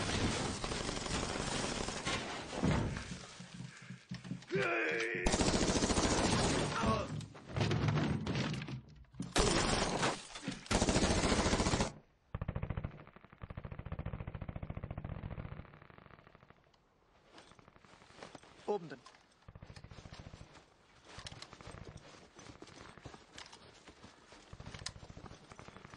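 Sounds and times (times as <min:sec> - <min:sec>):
man shouting: 0:04.5 - 0:05.3.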